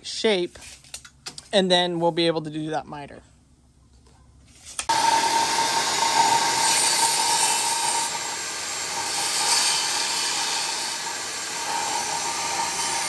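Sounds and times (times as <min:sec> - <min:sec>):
table saw ripping a board: 0:04.7 - 0:13.0.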